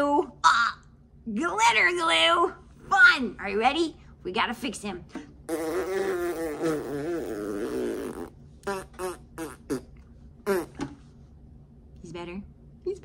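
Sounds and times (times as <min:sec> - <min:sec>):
woman's buzzing vocal noise: 0:05.5 - 0:10.8.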